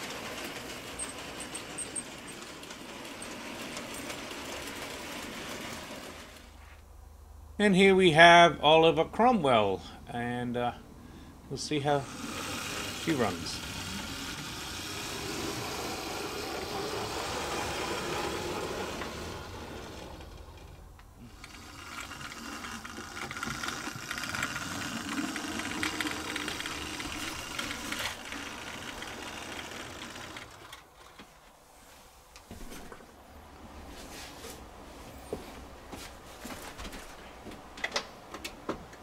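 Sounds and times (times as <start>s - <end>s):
model train motor whirring: 0.0s - 6.6s, 11.8s - 31.3s
wheels rattling on rails: 0.0s - 6.6s, 12.0s - 31.4s.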